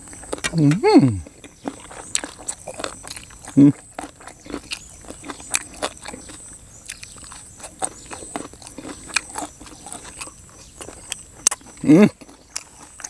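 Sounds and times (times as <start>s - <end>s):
chewing with crunchy clicks: 0.0s - 13.0s
wet mouth sounds: 0.4s - 1.4s.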